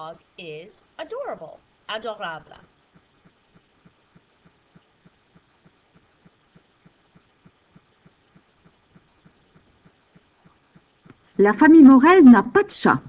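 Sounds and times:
low room hum: 0:00.0 - 0:13.0
faint even ticking: 0:01.6 - 0:11.7.

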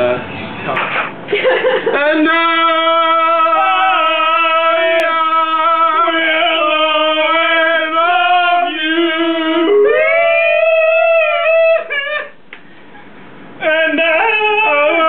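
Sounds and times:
men singing unaccompanied: 0:01.9 - 0:11.8, 0:13.6 - 0:15.0.

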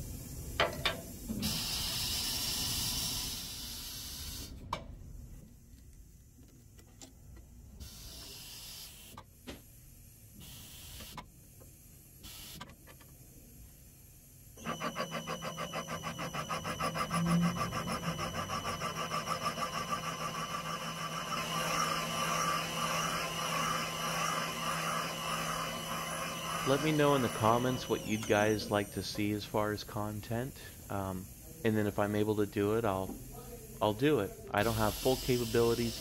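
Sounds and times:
cutter motor running with pulsing: 0:14.6 - 0:29.0.

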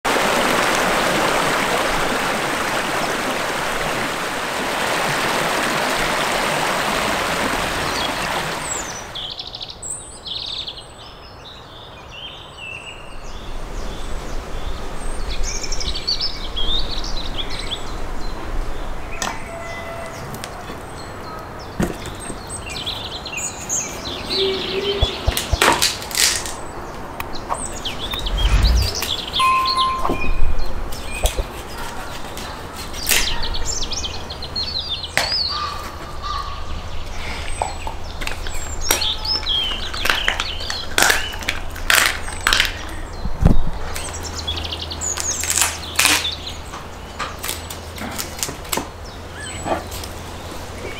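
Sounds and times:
stream rushing over rocks: 0:00.1 - 0:09.2
birds chirping: 0:26.6 - 0:31.8
low rumble: 0:28.1 - 0:30.7.

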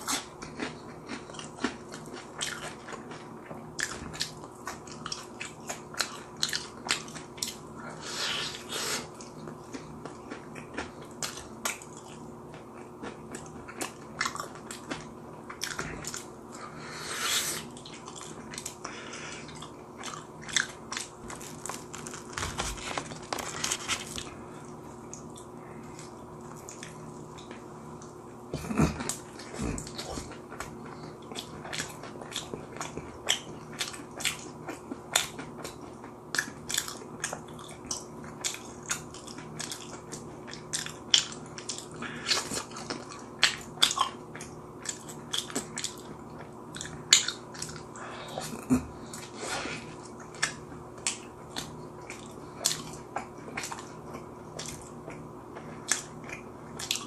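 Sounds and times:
crunchy chewing: 0:00.0 - 0:57.0
faint steady hum: 0:00.0 - 0:57.0.

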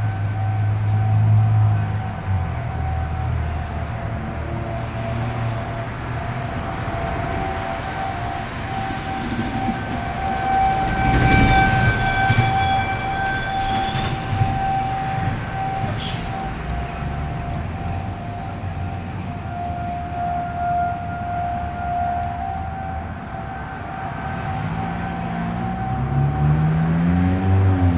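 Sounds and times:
traffic rumble: 0:00.0 - 0:27.9
warning siren wailing: 0:00.0 - 0:27.9.

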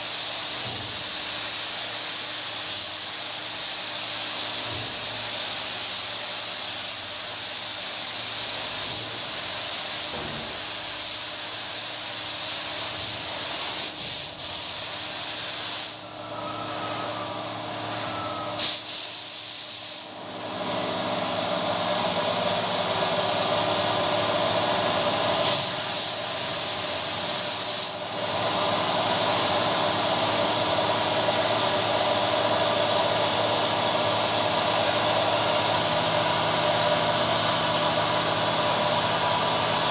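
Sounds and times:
spray gun hissing: 0:00.0 - 0:16.1, 0:18.6 - 0:20.2, 0:24.7 - 0:30.6.

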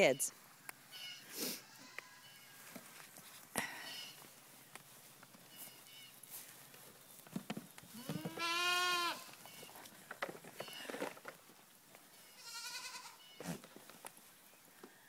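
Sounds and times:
goat kids bleating: 0:07.9 - 0:09.8, 0:12.1 - 0:13.6.

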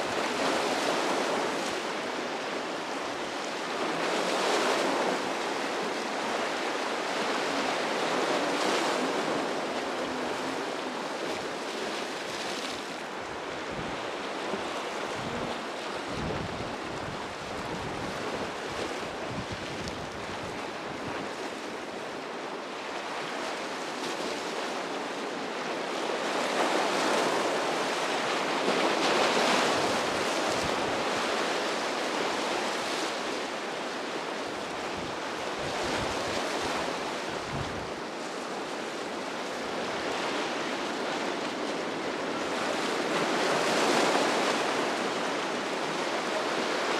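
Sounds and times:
ocean surf breaking: 0:00.0 - 0:46.9
wind buffeting microphone: 0:13.2 - 0:21.4, 0:34.9 - 0:38.0.

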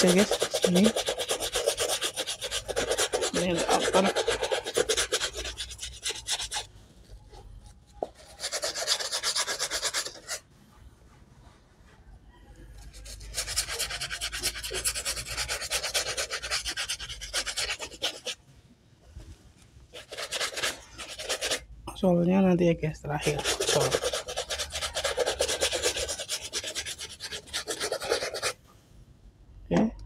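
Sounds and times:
brush scrubbing wet shoe: 0:00.0 - 0:07.2, 0:08.0 - 0:10.4, 0:12.8 - 0:18.4, 0:19.9 - 0:21.6, 0:23.2 - 0:28.6.

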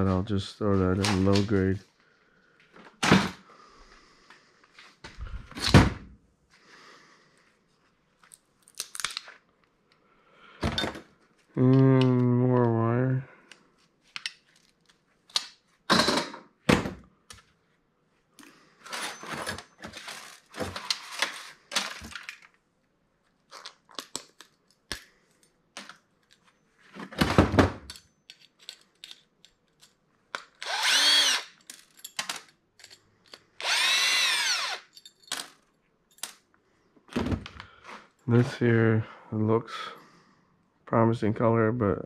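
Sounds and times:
metal parts clattering: 0:27.9 - 0:30.0, 0:31.6 - 0:33.4
cordless drill whirring: 0:30.6 - 0:31.6, 0:33.6 - 0:34.9.

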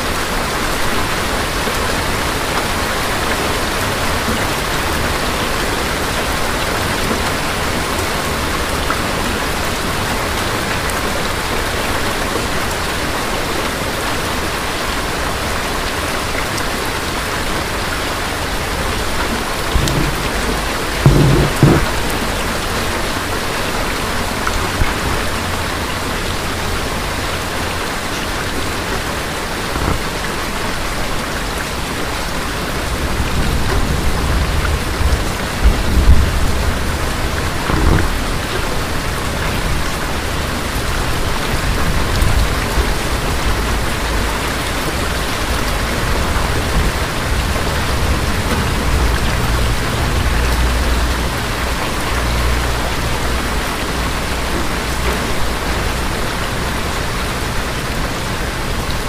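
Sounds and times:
steady rain: 0:00.0 - 0:59.0
low rumble of thunder: 0:18.8 - 0:26.6, 0:32.7 - 0:57.2
sharp thunder clap: 0:19.7 - 0:22.6.

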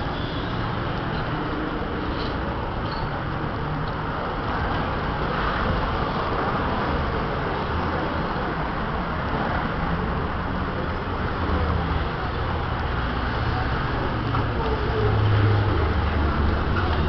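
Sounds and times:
traffic rumble: 0:00.0 - 0:17.0.

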